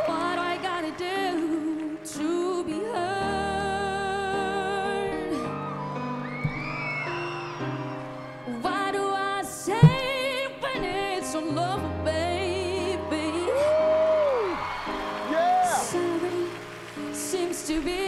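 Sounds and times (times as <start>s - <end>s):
girl singing a slow ballad: 0.0s - 6.8s, 8.5s - 14.6s, 15.6s - 18.0s
grand piano chords: 0.0s - 18.0s.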